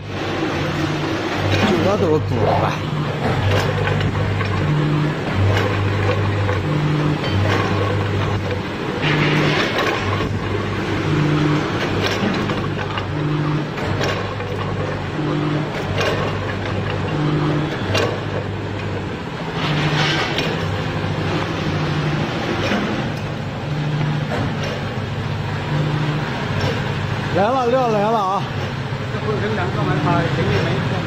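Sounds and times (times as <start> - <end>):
fries rattling through chutes: 0.0 - 31.0
machine buzz and click: 0.0 - 31.0
machine electric hum: 0.0 - 31.0.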